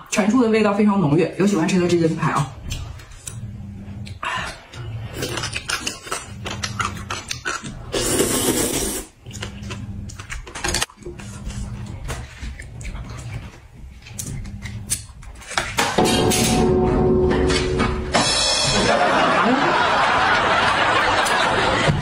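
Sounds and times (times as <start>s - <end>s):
noodle slurp: 4.6s - 13.7s
music: 16.0s - 19.0s.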